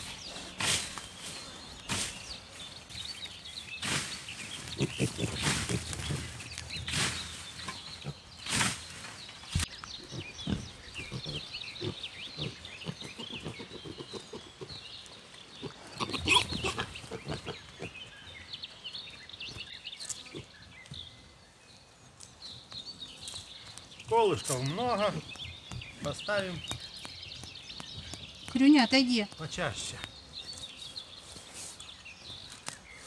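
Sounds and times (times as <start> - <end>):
small birds chirping: 0.0 - 33.0
pigs grunting: 4.6 - 6.4, 10.0 - 14.8, 15.6 - 18.0.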